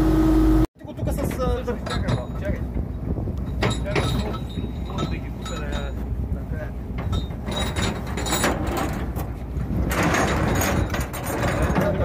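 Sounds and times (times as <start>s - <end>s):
metal chain clanking on steel deck: 1.2s - 2.7s, 3.5s - 6.1s, 6.9s - 12.0s.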